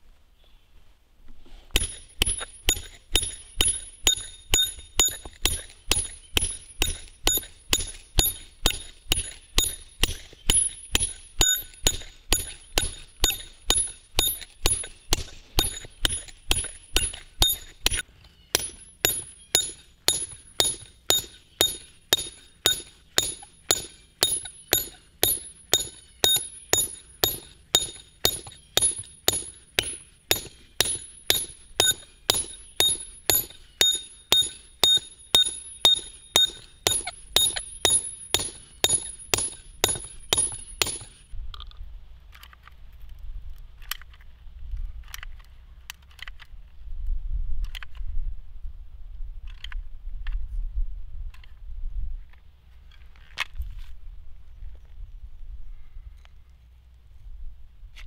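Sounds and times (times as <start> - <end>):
hammer striking steel drill rod: 1.7 - 41.2.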